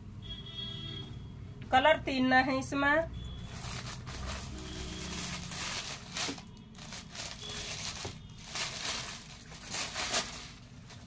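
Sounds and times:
fabric rustling: 3.4s - 11.0s.

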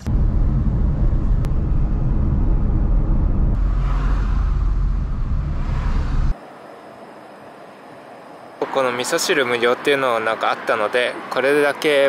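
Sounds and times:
road and engine rumble: 0.0s - 12.0s.

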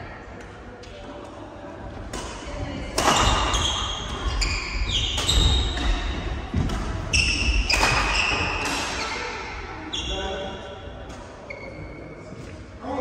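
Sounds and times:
rackets hitting shuttlecock: 2.1s - 9.2s.

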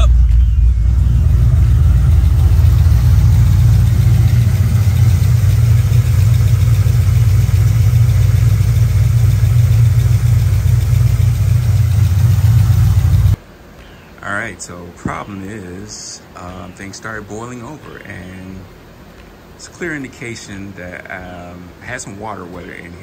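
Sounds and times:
car engine idling: 0.0s - 13.4s.

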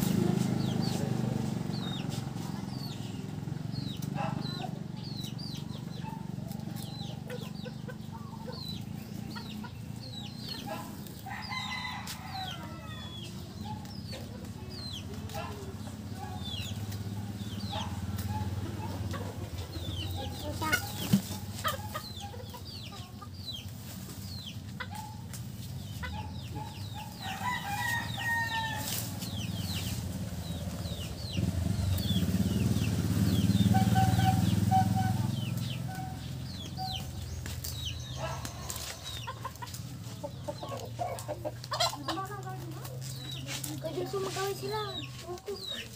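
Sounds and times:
hens clucking: 0.0s - 45.9s
rooster crowing: 11.2s - 13.2s, 27.0s - 29.1s.

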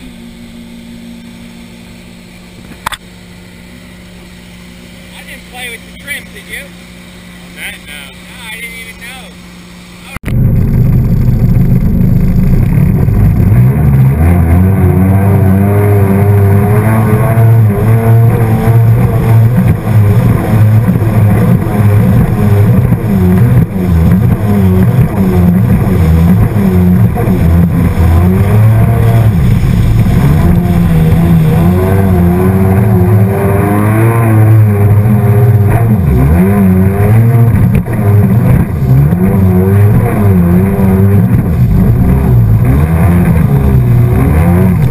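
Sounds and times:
boat engine running at speed: 0.0s - 44.9s
rush of wind and water: 23.8s - 32.7s.

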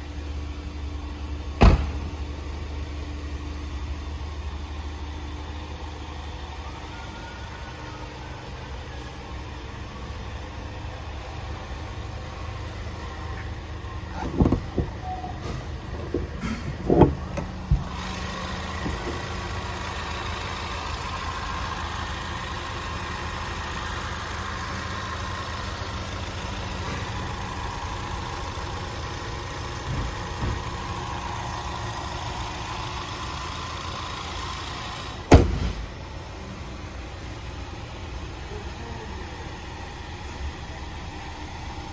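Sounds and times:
car engine idling: 0.0s - 41.9s
car hood thump shut: 1.6s - 2.1s, 35.3s - 35.9s.

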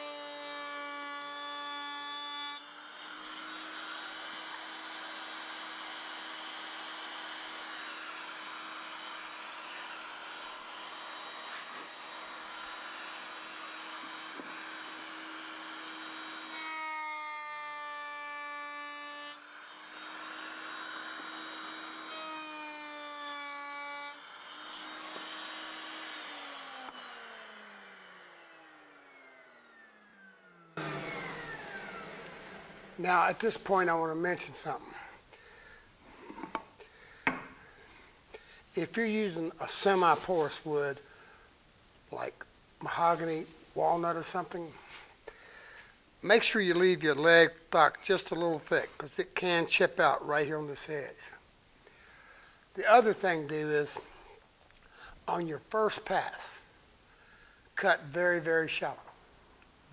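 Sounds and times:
power tool motor whining: 0.0s - 18.0s, 19.4s - 35.4s.

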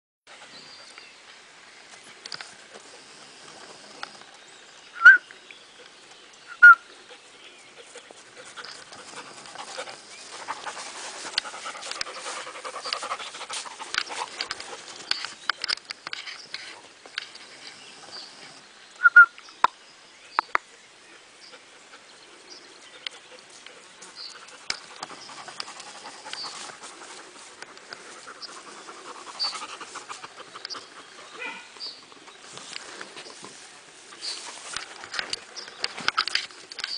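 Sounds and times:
dog panting: 7.1s - 15.1s, 23.0s - 33.0s.

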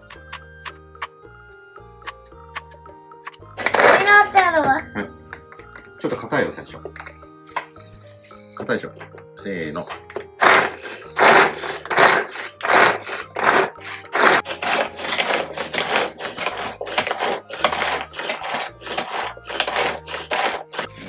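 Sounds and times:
pull-cord food chopper whirring: 3.6s - 4.1s, 10.3s - 21.0s.

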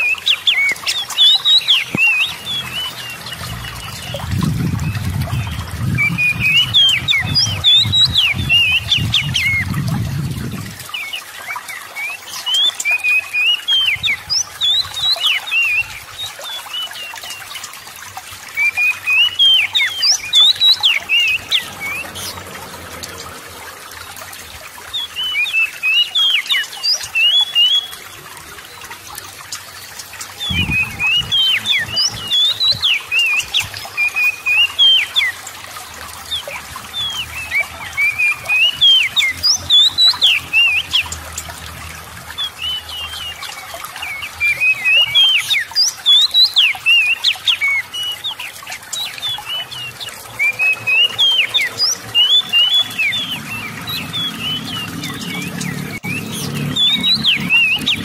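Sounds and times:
bird singing whistled notes: 0.0s - 9.8s, 25.0s - 28.1s, 30.4s - 35.4s, 36.4s - 41.2s, 42.4s - 58.0s
trickling water: 0.0s - 58.0s.

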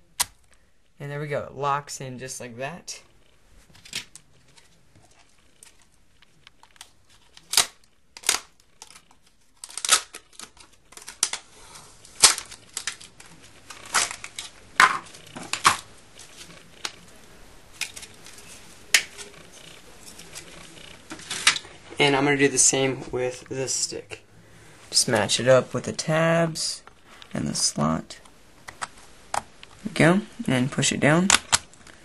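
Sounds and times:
plastic packaging crinkling: 3.6s - 22.0s.

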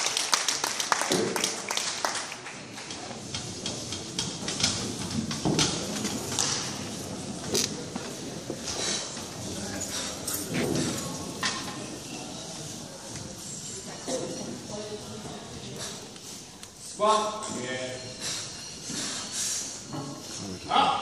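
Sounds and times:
crowd clapping: 0.0s - 3.0s.

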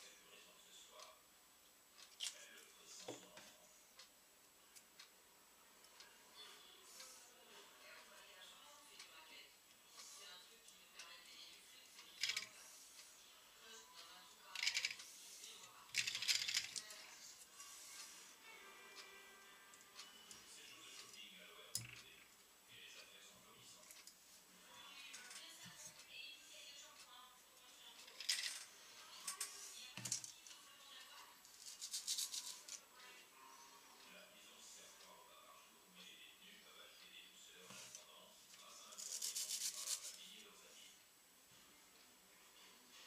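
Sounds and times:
faint background music: 0.0s - 43.0s
small objects rattling and clinking: 15.9s - 16.9s.

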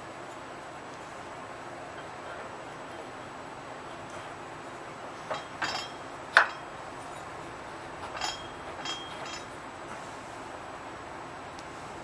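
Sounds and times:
metal parts clinking: 5.2s - 7.4s, 8.0s - 9.6s.

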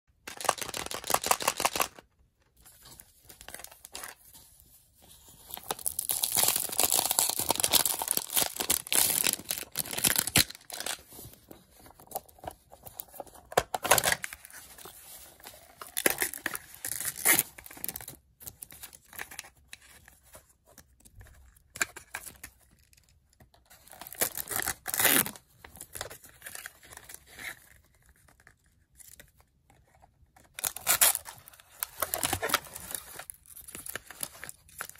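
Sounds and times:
wrappers tearing and crinkling: 5.6s - 11.0s, 24.2s - 25.3s.

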